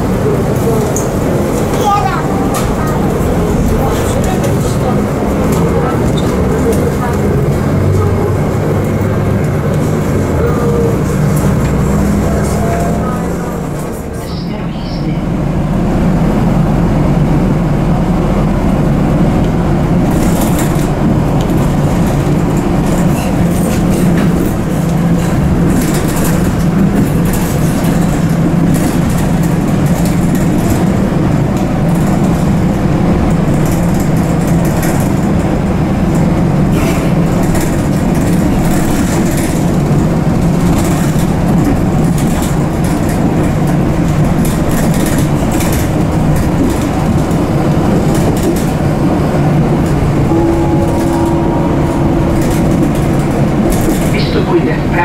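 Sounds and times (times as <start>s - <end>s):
train wheels rumbling: 0.0s - 55.0s.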